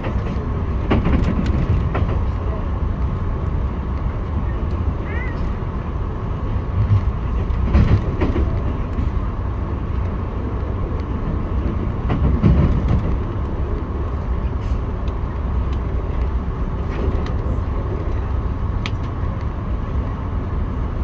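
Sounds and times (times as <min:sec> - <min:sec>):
train bumps: 0:00.0 - 0:03.2, 0:06.6 - 0:19.3
train wheels rumbling on rails: 0:00.0 - 0:21.0.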